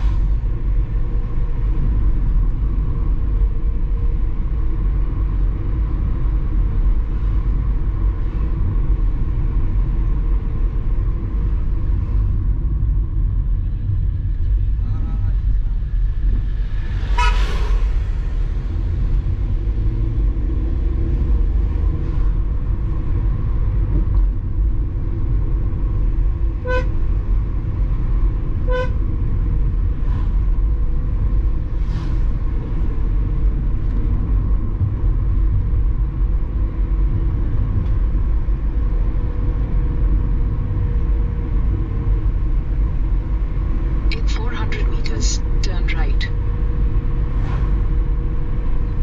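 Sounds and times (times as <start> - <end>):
car engine rumble: 0.0 - 49.0
car horn beeps: 17.2 - 17.4, 26.6 - 27.0, 28.7 - 29.0.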